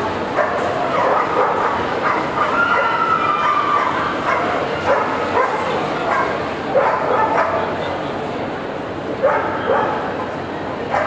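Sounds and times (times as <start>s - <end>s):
crowd din: 0.0s - 11.0s
dogs barking and yipping: 0.3s - 7.6s, 9.2s - 10.1s.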